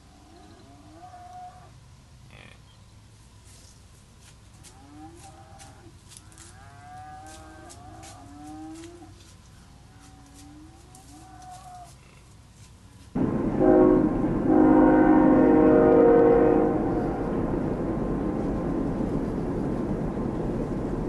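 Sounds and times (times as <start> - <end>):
dry leaves crackling underfoot: 3.4 - 13.2.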